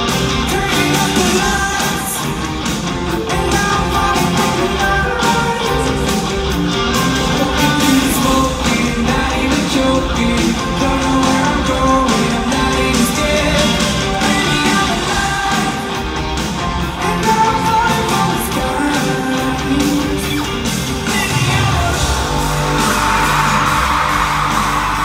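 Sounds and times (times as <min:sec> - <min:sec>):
live rock band playing: 0:00.0 - 0:25.0.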